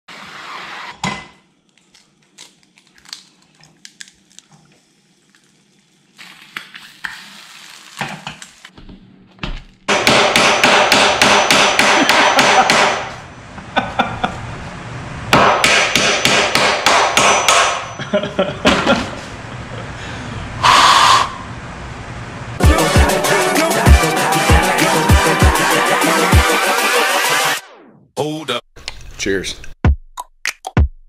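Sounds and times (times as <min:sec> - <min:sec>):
hammer striking wood: 0:09.9 - 0:13.1, 0:15.3 - 0:17.8.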